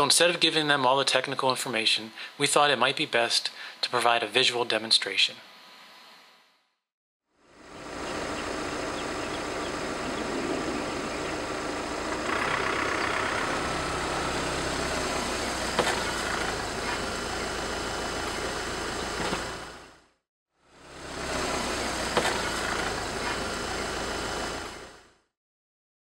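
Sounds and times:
diesel engine idling: 7.6 - 20.0, 20.9 - 25.0.

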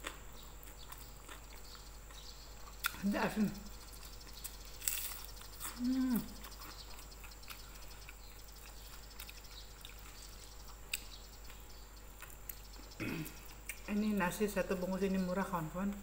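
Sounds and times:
person chewing: 0.0 - 3.0, 3.8 - 13.9
person humming mm: 5.8 - 6.4.

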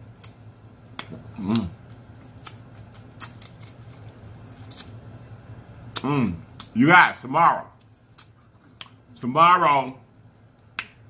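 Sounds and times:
low steady hum: 0.0 - 11.0
short voiced hum: 1.2 - 1.8, 5.9 - 7.8.

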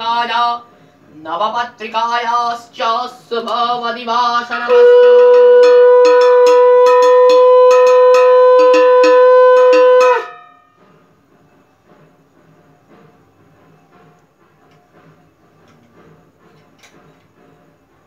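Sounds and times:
person chanting: 1.3 - 10.2
conch shell blown: 4.6 - 10.5
hand bell ringing rapidly: 5.0 - 10.6.

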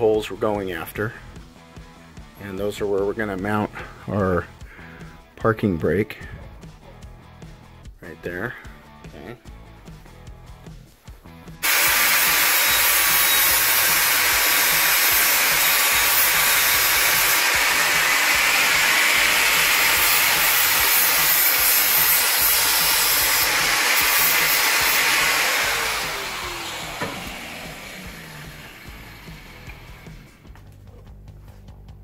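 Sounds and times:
angle grinder grinding metal: 11.6 - 30.4
grinder disc spinning down: 11.6 - 30.4.

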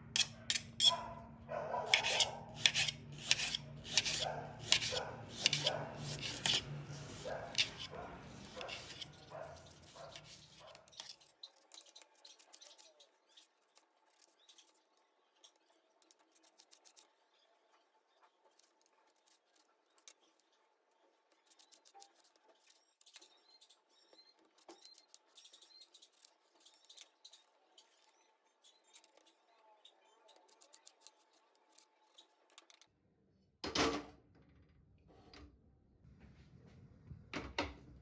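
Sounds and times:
knife slicing onion: 1.8 - 14.7
knife cutting tomatoes on plate: 1.9 - 13.5.

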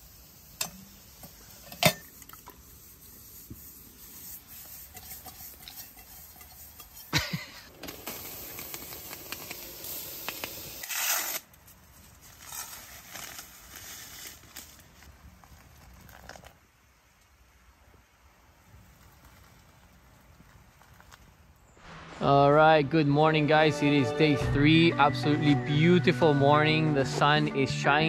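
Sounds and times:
hot water pouring: 0.0 - 11.4.

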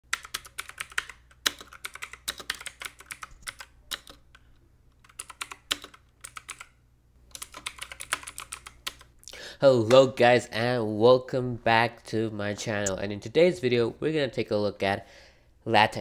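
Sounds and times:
computer keyboard typing: 0.1 - 9.1.

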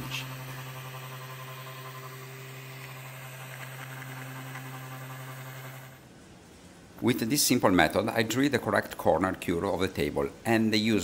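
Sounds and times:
power sander on wood: 0.0 - 6.0.

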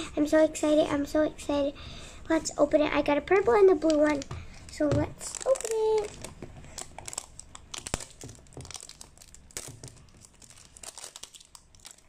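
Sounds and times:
plastic shrink wrap crinkling and tearing: 3.7 - 12.0.

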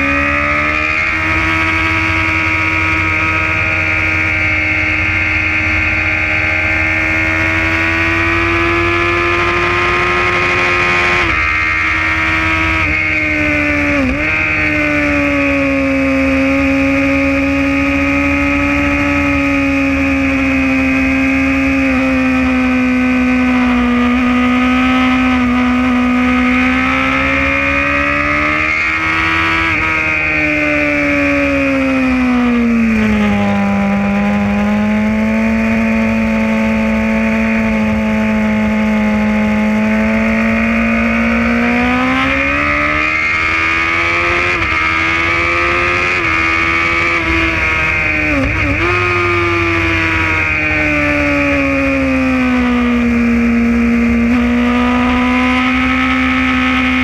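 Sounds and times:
motorcycle engine revving high: 0.0 - 57.0.

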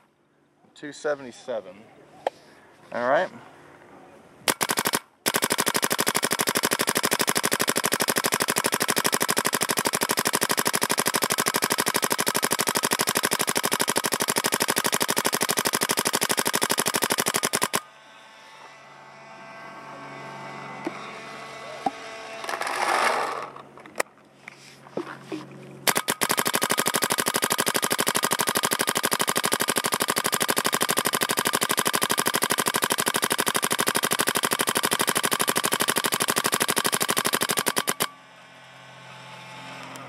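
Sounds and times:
paintball marker firing: 4.5 - 17.8, 25.9 - 38.1.

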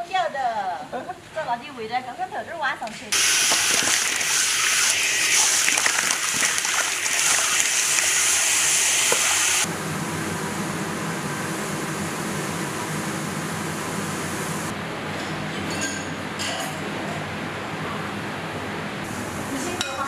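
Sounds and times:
fish deep-frying in oil: 3.2 - 9.7.

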